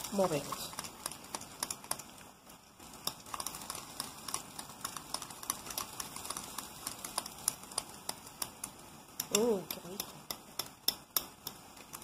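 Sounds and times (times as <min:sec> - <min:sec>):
fork clicking against glass bowl: 0:09.2 - 0:12.0.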